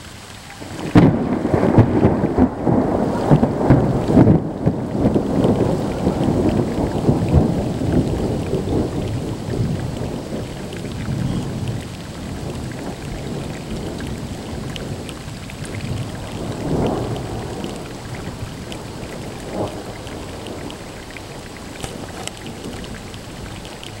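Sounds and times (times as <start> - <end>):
rain falling: 0.0 - 24.0
raindrop ticks: 0.0 - 24.0
thunder rumbling: 0.0 - 24.0.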